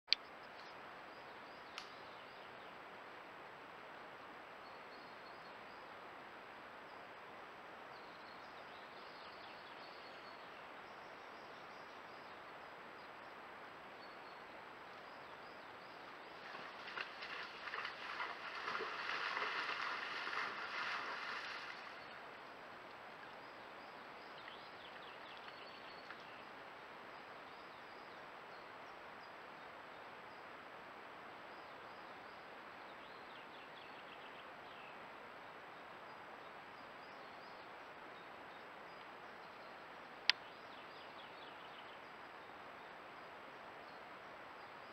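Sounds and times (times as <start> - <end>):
faint steady hiss: 0.1 - 44.9
rustling through tall grass: 16.4 - 22.1.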